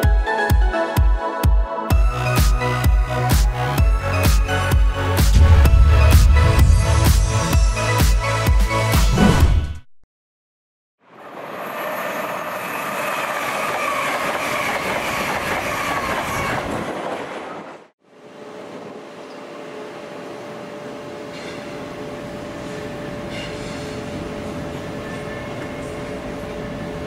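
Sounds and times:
wheel and rail noise: 11.1s - 27.0s.

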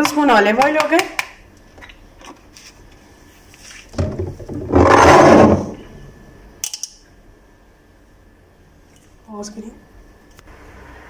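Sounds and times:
loud scraping rub: 4.7s - 5.8s.

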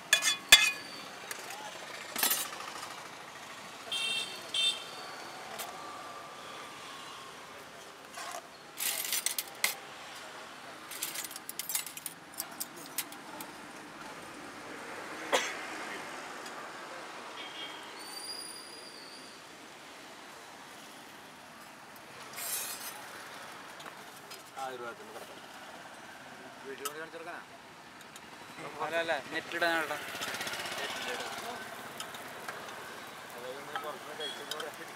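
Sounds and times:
street noise hum: 0.0s - 34.9s
spoon and plates clinking: 0.1s - 1.0s.

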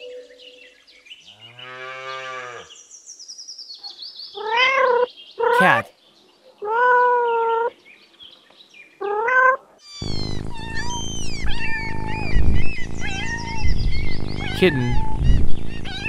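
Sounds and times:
kitten mewing: 5.4s - 5.9s, 10.0s - 16.0s
cat meowing: 9.1s - 16.0s.

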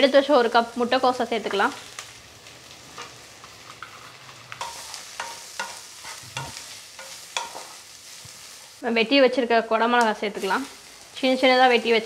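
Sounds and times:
vegetables sizzling in oil: 0.0s - 12.0s
spatula knocking and scraping pan: 3.7s - 8.4s.

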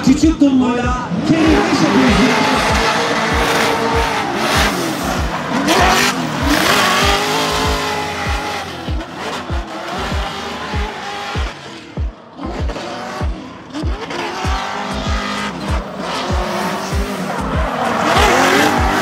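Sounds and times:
car engines revving: 0.0s - 19.0s
music with thudding bass beat: 0.1s - 19.0s.

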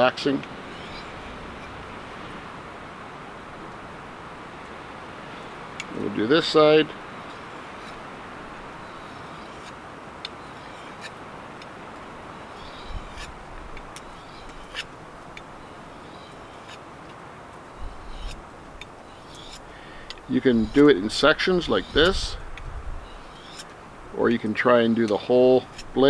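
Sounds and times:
faint bird calls: 0.0s - 2.4s, 8.6s - 16.8s, 17.6s - 23.8s
steady outdoor hiss: 0.0s - 26.0s
knife scraping on sharpening stone: 0.7s - 1.8s, 8.8s - 9.8s, 10.4s - 11.2s, 12.6s - 13.4s, 14.1s - 14.9s, 16.0s - 16.8s, 17.8s - 18.4s, 19.1s - 19.7s, 23.1s - 23.8s, 25.1s - 26.0s.

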